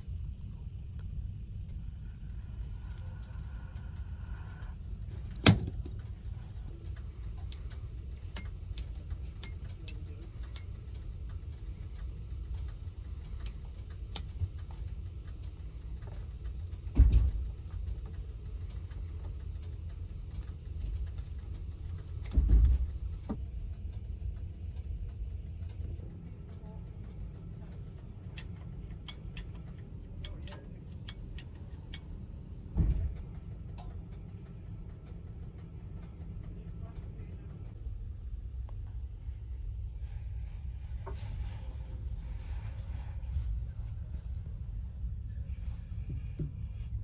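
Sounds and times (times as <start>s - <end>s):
train cabin low rumble: 0.0s - 47.0s.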